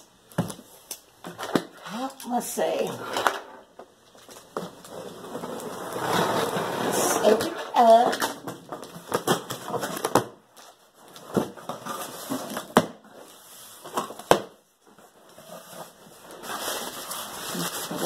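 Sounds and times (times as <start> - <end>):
cardboard rustling and scraping: 4.2 - 14.2, 14.9 - 18.0
bubble wrap crinkling: 8.6 - 18.0.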